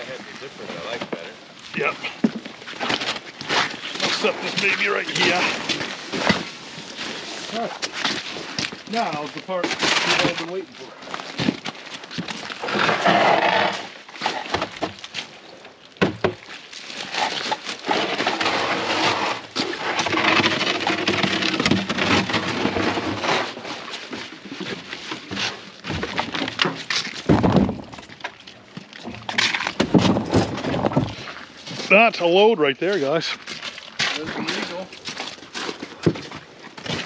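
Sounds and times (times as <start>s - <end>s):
plywood panels dragged and knocking: 12.6s - 15.0s, 17.2s - 28.1s, 29.0s - 32.3s.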